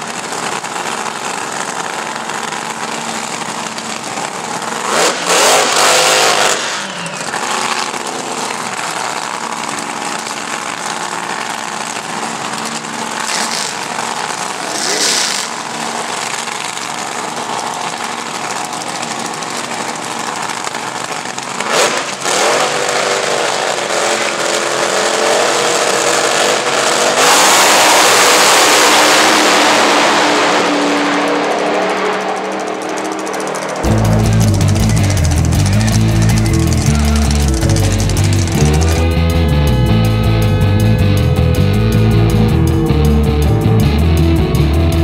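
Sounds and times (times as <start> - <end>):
dragster engines revving: 0.0 - 45.0.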